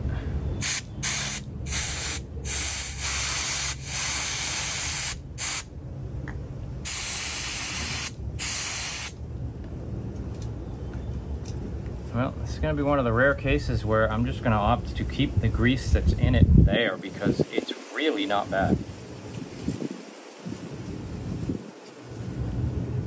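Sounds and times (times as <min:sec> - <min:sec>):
low steady hum: 0:00.0 - 0:17.4
spray hissing in bursts: 0:00.6 - 0:05.7, 0:06.8 - 0:09.2.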